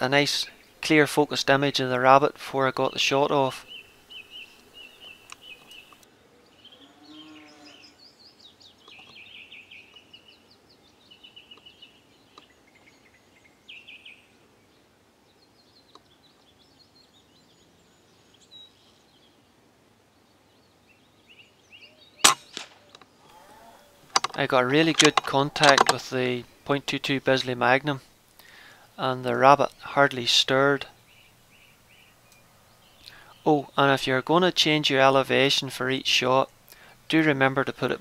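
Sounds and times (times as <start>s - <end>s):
small birds chirping: 0.0s - 38.0s
air rifle firing: 22.2s - 22.9s
faint crack: 22.3s - 23.4s.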